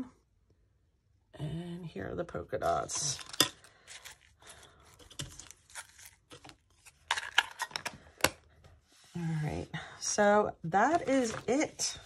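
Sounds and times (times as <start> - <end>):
packaging rustling: 3.2 - 7.9.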